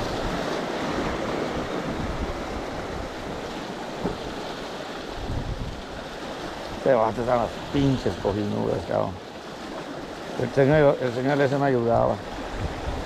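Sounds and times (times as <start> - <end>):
wind rumbling on microphone: 0.0 - 8.5, 12.0 - 13.0
surf splashing over rocks: 0.0 - 13.0.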